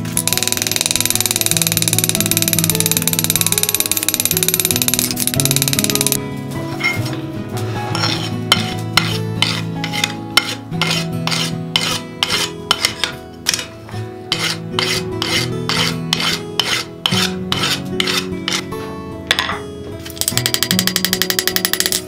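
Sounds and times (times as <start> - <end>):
background music with held notes: 0.0 - 22.0
file rasping on iron bar: 7.9 - 13.7, 14.3 - 18.7.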